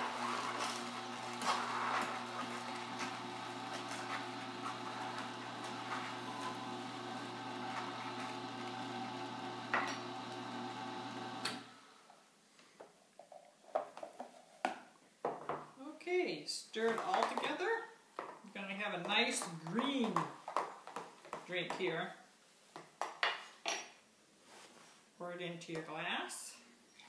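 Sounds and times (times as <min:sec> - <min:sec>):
juicer motor hum: 0:00.0 - 0:11.8.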